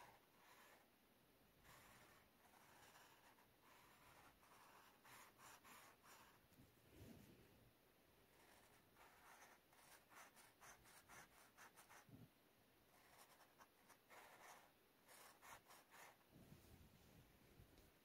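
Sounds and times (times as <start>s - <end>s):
marker scratching on paper: 0.0s - 0.9s, 1.6s - 6.4s, 8.3s - 12.2s, 12.9s - 16.3s.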